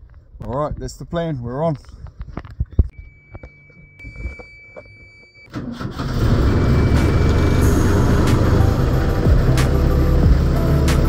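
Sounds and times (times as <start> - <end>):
high warning tone: 2.9 - 5.5, 6.5 - 9.5.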